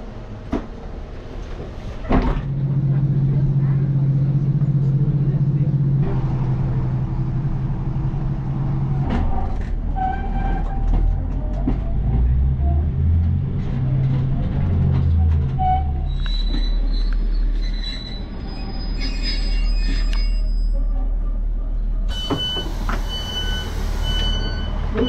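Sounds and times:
train engine drone: 0:00.0 - 0:25.0
wheels and brakes squealing: 0:15.0 - 0:21.1, 0:22.1 - 0:25.0.

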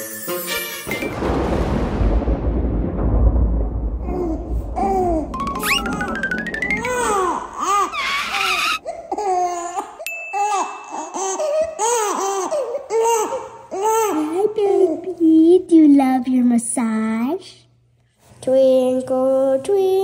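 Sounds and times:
low rumble sound effect: 0:01.2 - 0:07.6
rising glide sound effect: 0:05.2 - 0:08.8
bright ding: 0:05.4 - 0:07.3, 0:10.0 - 0:11.0
background music: 0:05.4 - 0:07.8
baby giggling: 0:06.8 - 0:09.9.

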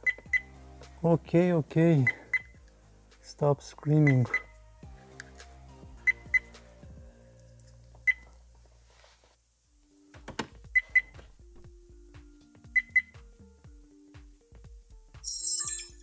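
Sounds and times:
soft background music: 0:00.0 - 0:16.0
short high electronic beeps: 0:15.3 - 0:16.0.

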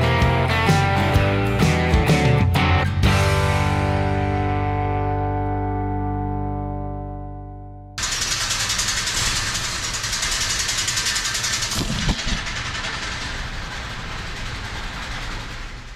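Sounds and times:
music: 0:00.0 - 0:08.0
machine rattling: 0:08.0 - 0:15.9.

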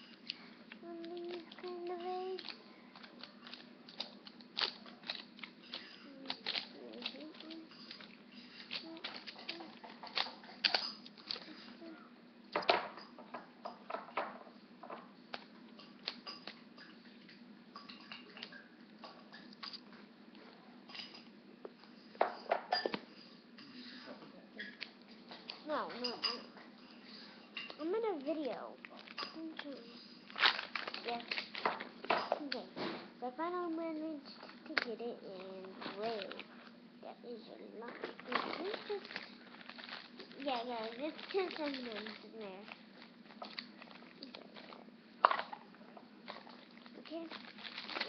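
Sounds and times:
wrapping crinkling: 0:00.0 - 0:11.9, 0:25.6 - 0:32.8, 0:33.6 - 0:48.0.

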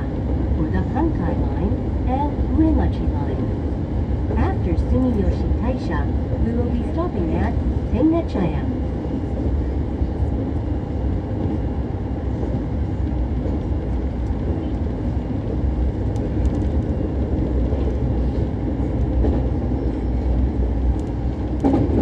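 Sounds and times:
train wheels rumbling on track: 0:00.0 - 0:22.0.

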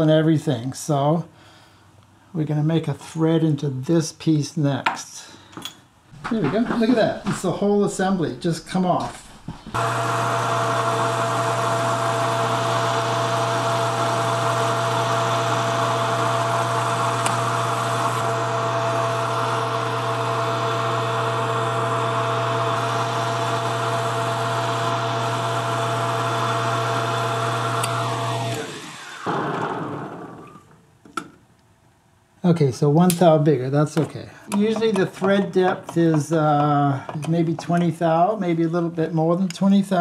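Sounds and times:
metal lathe humming: 0:06.3 - 0:30.5
lathe spindle winding down: 0:07.0 - 0:30.6.

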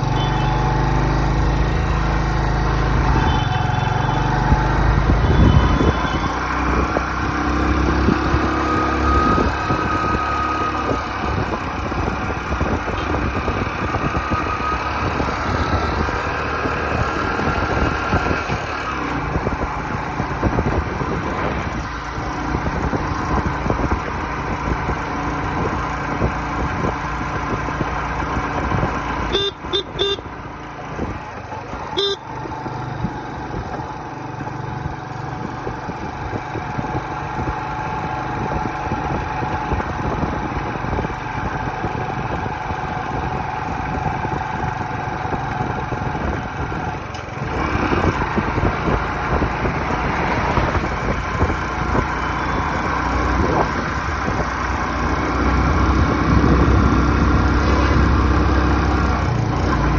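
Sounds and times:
motorcycle engine running: 0:00.0 - 0:59.9
wind and road noise: 0:00.0 - 0:59.9
horn beeping: 0:05.2 - 0:06.4, 0:29.3 - 0:30.3, 0:31.9 - 0:32.4.

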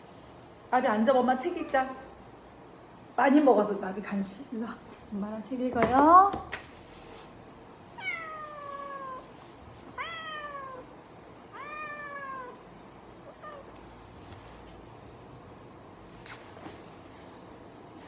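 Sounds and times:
cat meowing: 0:08.0 - 0:09.3, 0:09.9 - 0:10.9, 0:11.5 - 0:12.6, 0:13.3 - 0:13.8.

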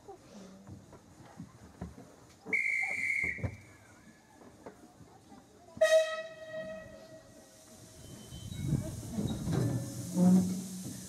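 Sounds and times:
shrill hand whistle: 0:02.5 - 0:03.6
steam locomotive whistle: 0:02.5 - 0:03.6, 0:05.8 - 0:07.1.

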